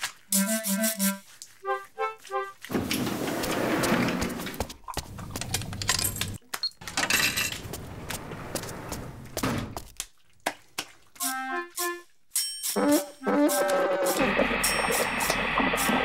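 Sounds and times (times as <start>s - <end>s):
short musical notes: 0.3s - 2.6s, 11.2s - 12.1s.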